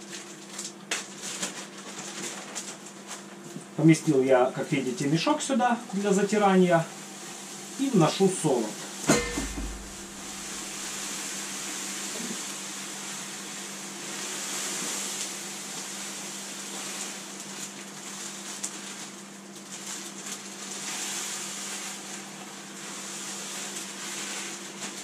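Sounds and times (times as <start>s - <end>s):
plastic bag crinkling: 0.0s - 3.5s, 7.8s - 11.4s, 15.0s - 25.0s
steady low hum: 3.4s - 14.3s
grain pouring hiss: 3.8s - 25.0s.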